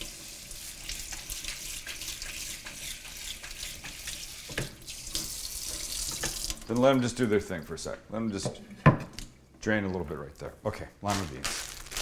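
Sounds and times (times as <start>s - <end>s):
faucet running water: 0.0s - 8.9s.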